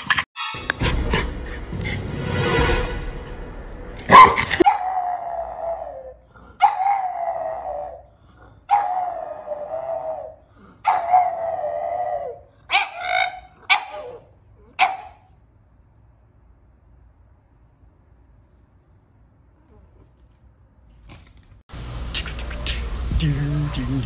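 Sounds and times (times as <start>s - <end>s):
dog howling: 4.6s - 14.3s.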